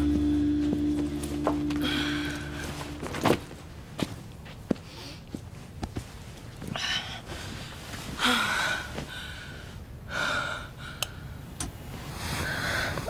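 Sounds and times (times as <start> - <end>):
woman breathing heavily: 1.7 - 3.1, 6.6 - 11.5, 12.3 - 13.0.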